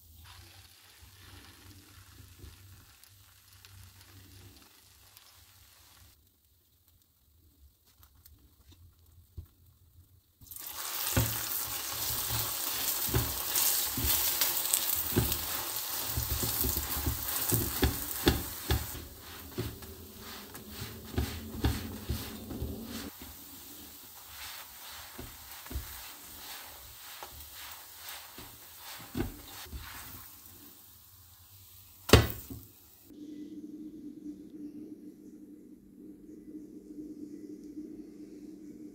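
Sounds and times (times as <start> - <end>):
flatbread sizzling in oil: 0.0 - 6.2, 10.4 - 33.1
spatula tapping a pan: 12.2 - 23.0.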